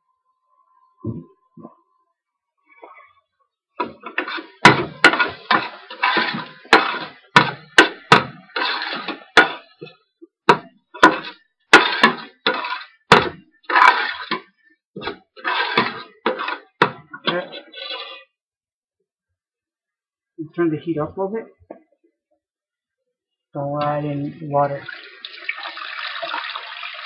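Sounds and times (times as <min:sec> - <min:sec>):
metal ladle scraping a pot: 0:03.8 - 0:09.9, 0:11.0 - 0:18.3.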